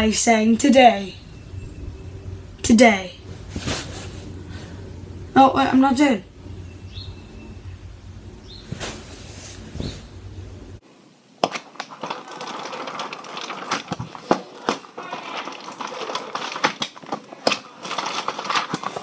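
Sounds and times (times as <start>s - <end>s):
low hum: 0.8s - 10.8s
paper rustling: 11.4s - 19.0s.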